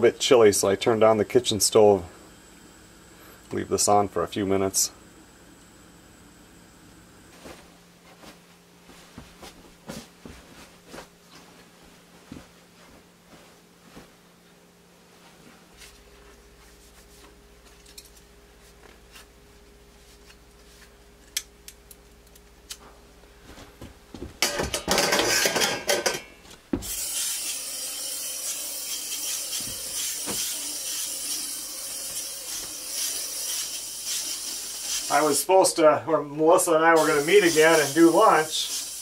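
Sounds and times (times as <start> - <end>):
faint hum: 0.0 - 26.8
pots and dishes clattering: 24.4 - 26.4
steady hiss: 28.4 - 36.0, 36.6 - 39.0.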